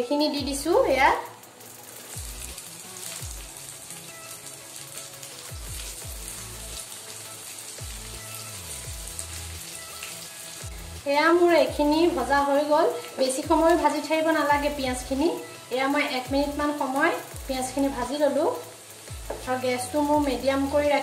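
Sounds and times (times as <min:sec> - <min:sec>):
onions sizzling in oil: 0:00.0 - 0:21.0
background music with bass: 0:00.4 - 0:01.2, 0:02.1 - 0:04.2, 0:05.5 - 0:12.5, 0:13.5 - 0:15.3, 0:16.3 - 0:16.8, 0:17.4 - 0:18.2, 0:19.1 - 0:21.0.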